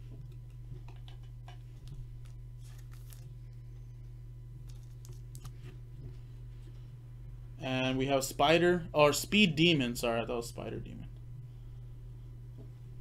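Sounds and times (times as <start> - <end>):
steady low hum: 0.0 - 13.0
clicks and crinkles of plastic sleeve: 1.8 - 3.4, 4.6 - 5.6.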